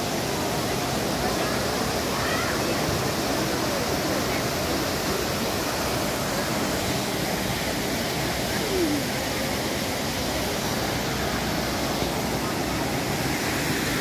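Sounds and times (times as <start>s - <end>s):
waterfall splashing over rocks: 0.0s - 14.0s.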